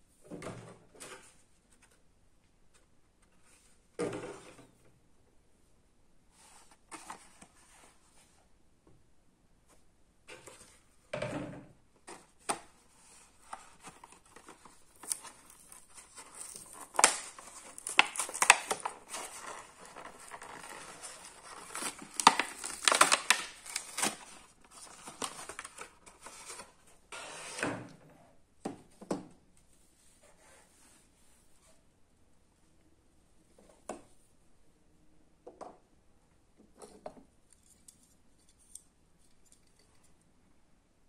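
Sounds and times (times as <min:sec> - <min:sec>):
plastic packaging crinkling and crackling: 0:13.1 - 0:26.8.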